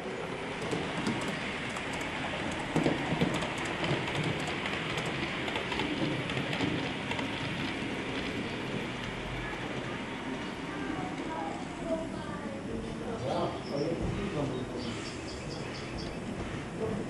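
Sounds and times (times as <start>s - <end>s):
model train wheels rattling: 0.5s - 9.9s.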